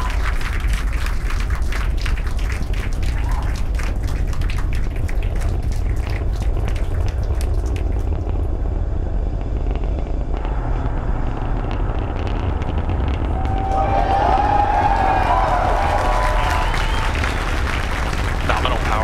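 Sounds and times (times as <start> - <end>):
rocket engines rumbling: 0.0 - 19.0
rocket exhaust crackling: 0.0 - 19.0.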